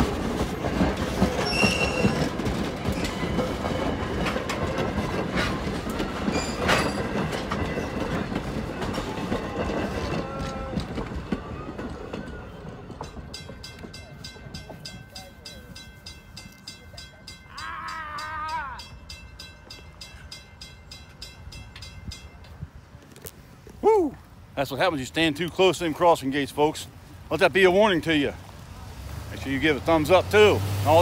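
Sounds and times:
crossing warning bell ringing: 0.0s - 10.8s, 12.7s - 22.9s
train wheels clicking on rails: 0.0s - 17.5s.

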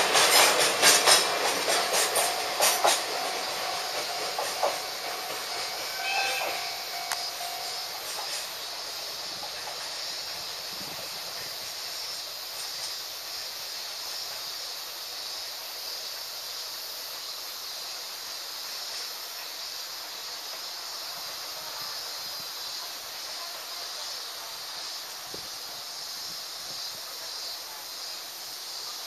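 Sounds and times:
train wagons rolling faintly: 0.0s - 13.1s
steady high-pitched hiss: 0.0s - 29.0s.

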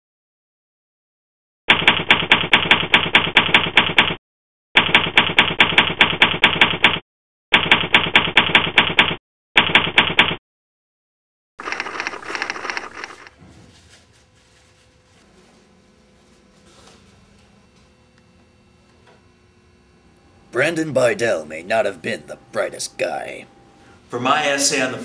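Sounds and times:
typewriter keys clacking: 11.6s - 13.3s.

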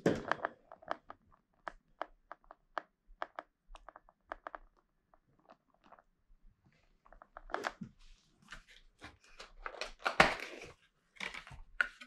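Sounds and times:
hands unpacking packaged items: 8.5s - 12.0s.

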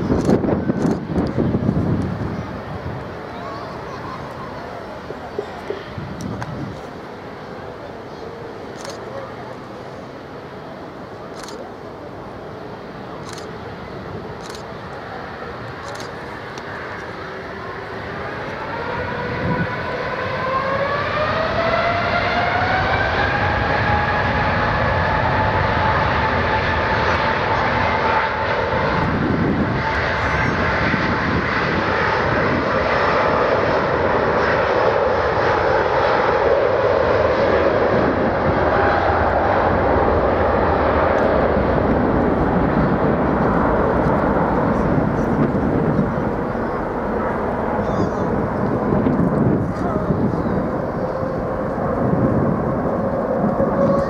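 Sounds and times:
jet engines spooling up: 0.0s - 54.0s
loud jet roar: 0.0s - 54.0s.

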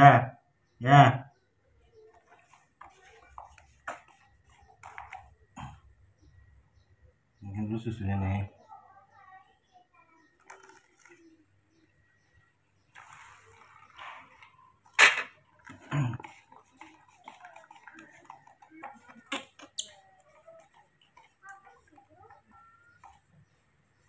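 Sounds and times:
baby monkey squeaking: 19.2s - 20.3s.

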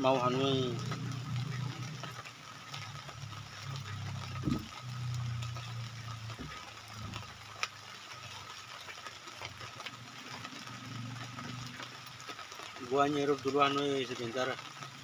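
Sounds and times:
drizzle pattering on plastic tarp: 0.0s - 15.0s
low engine-like hum: 0.1s - 7.4s.

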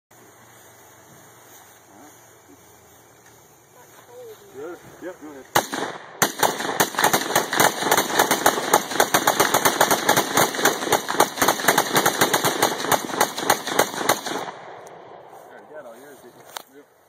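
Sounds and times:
rifles firing rapidly: 5.5s - 14.8s.

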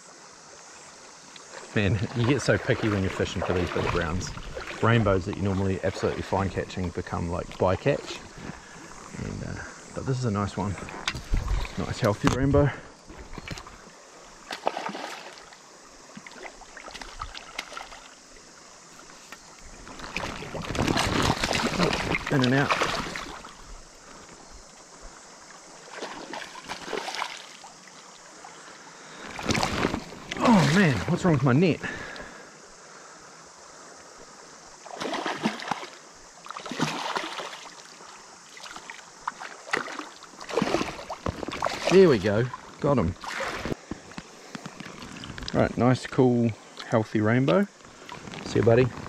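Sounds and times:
shallow river running: 0.0s - 49.0s
river running over stones: 10.4s - 31.8s
fish splashing at surface: 14.5s - 15.5s, 20.0s - 23.5s, 25.9s - 27.6s, 34.9s - 36.0s, 36.6s - 37.7s, 38.6s - 41.9s.

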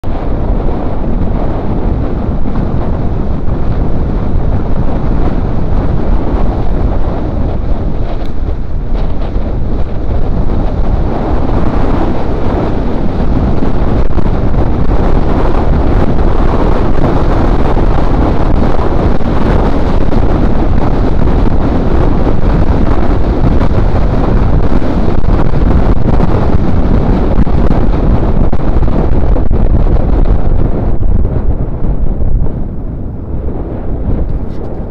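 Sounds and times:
wind buffeting microphone: 0.0s - 34.9s.

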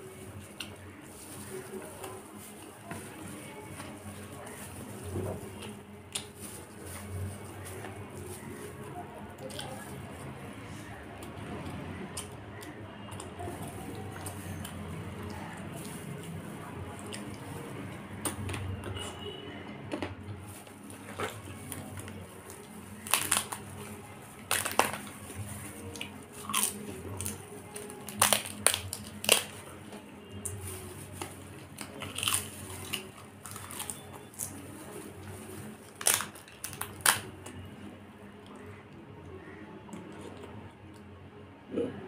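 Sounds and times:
crisp wafer cracking and crunching: 0.0s - 10.4s, 11.2s - 38.8s.

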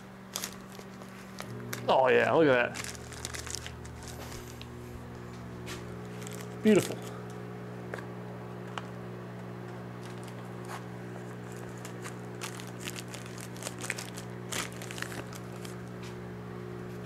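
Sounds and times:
plastic bag crinkling: 0.0s - 4.8s, 5.6s - 7.4s, 9.9s - 16.1s
microwave oven humming: 0.0s - 17.0s.

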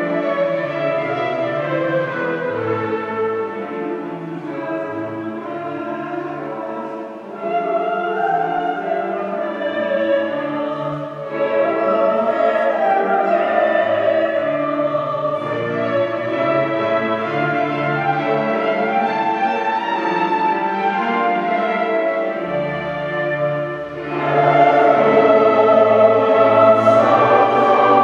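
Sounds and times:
string orchestra: 0.0s - 28.0s
mixed choir singing: 6.6s - 28.0s.

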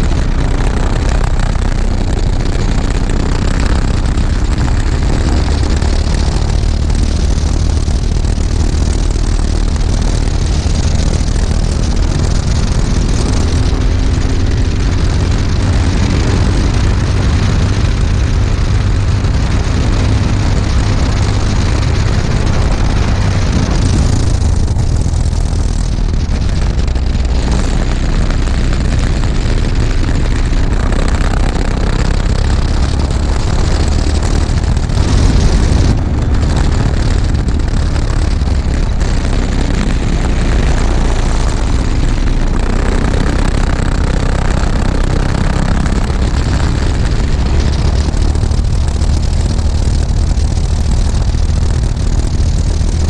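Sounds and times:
kart engine running hard: 0.0s - 53.0s.

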